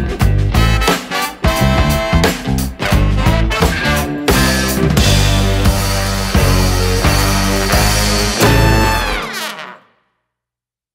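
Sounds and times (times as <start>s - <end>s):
music ending on struck chord: 6.3s - 9.3s.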